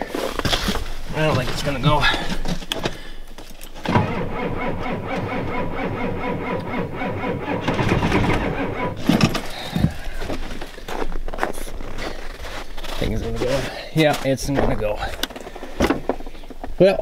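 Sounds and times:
starter cranking diesel engine: 3.9 - 10.1.

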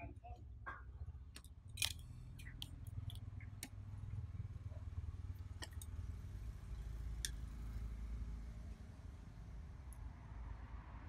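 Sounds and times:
phone parts and tool clicking: 1.4 - 3.2.

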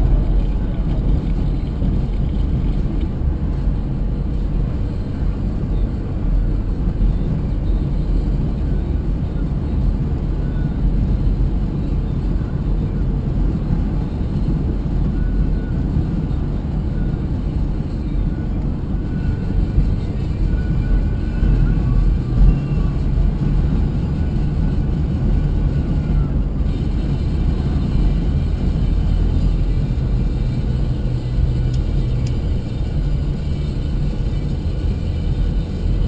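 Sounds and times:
car tyre and engine rumble: 0.0 - 36.0.

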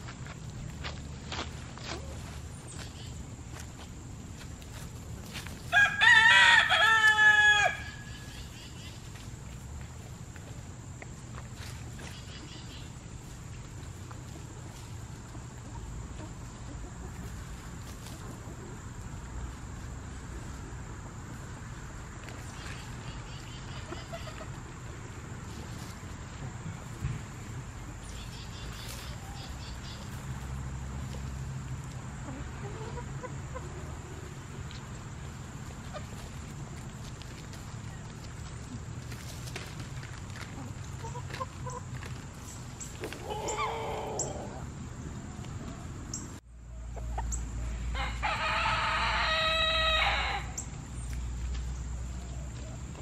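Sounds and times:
rooster crowing: 5.7 - 8.3, 43.2 - 44.6, 47.9 - 50.7
bird chirps: 12.0 - 13.0
chicken call: 43.2 - 44.6.

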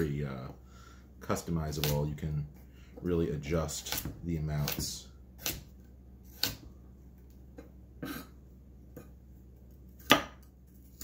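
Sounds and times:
knife chopping carrots on wooden board: 3.7 - 6.7, 10.0 - 11.0.

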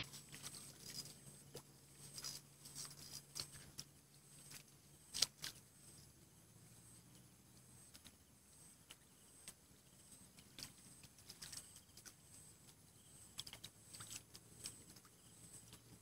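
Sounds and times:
faint light clicks and ticks: 8.8 - 16.0.

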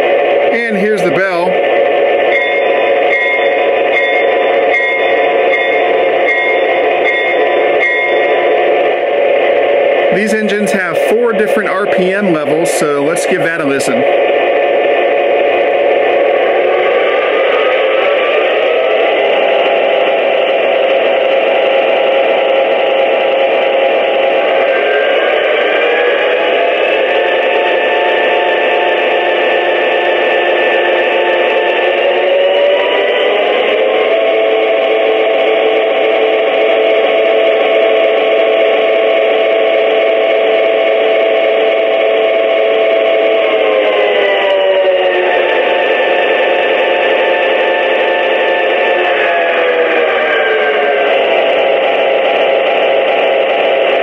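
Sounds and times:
diesel locomotive idling through speaker: 0.0 - 54.0
diesel engine sound from small speaker: 0.5 - 1.6, 10.1 - 14.2
locomotive bell ringing: 2.3 - 8.6.

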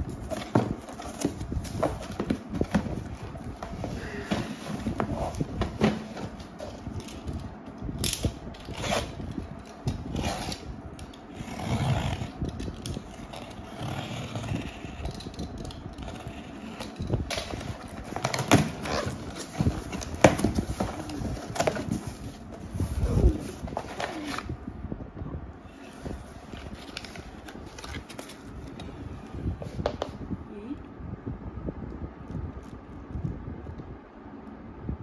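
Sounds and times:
packing tape tearing: 6.0 - 22.3.

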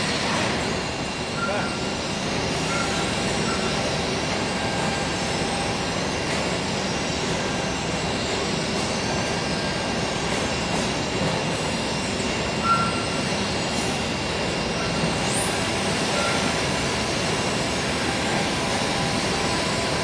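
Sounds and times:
machinery rumble and hiss: 0.0 - 20.0
short beep: 1.4 - 1.8, 12.6 - 13.1.

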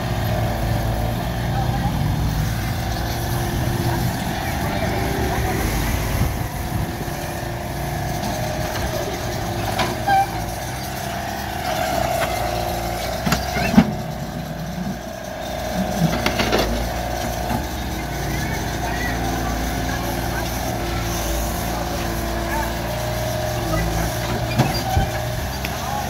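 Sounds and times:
excavator diesel engine: 0.0 - 26.0.

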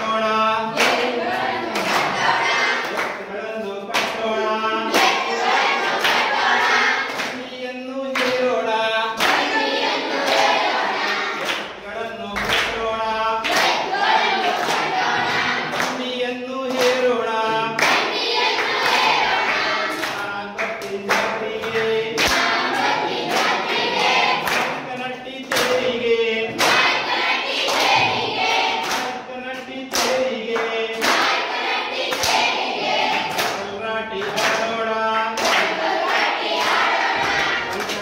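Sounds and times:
children singing in unison: 0.0 - 11.8, 13.3 - 16.0, 16.8 - 20.4, 21.4 - 24.9, 25.6 - 29.2, 30.6 - 38.0
hand claps: 0.7 - 3.3, 3.9 - 7.4, 8.1 - 8.6, 9.2 - 9.5, 10.2 - 38.0.

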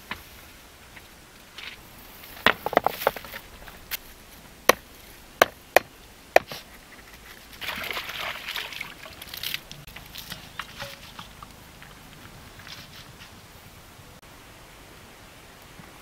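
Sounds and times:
soft rustling: 9.1 - 13.8.

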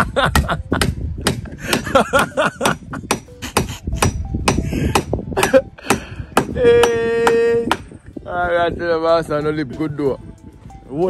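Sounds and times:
hammer striking wooden board: 0.4 - 1.9, 2.6 - 8.0.

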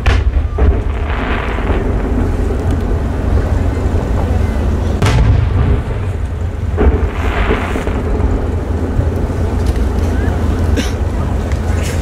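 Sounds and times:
firework shells booming: 0.0 - 3.7, 5.0 - 8.7
steady low rumble: 0.0 - 12.0.

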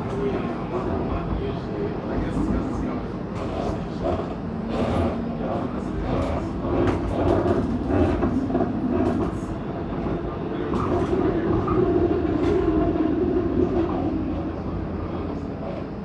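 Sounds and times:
streetcar wheels rumbling: 0.0 - 16.0.

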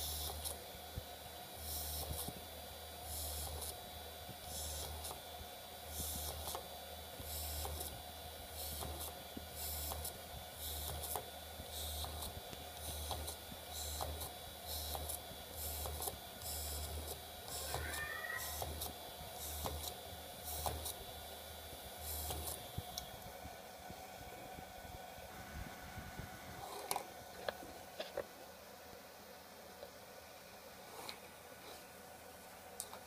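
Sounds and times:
drill bit cutting hiss: 15.6 - 20.7.

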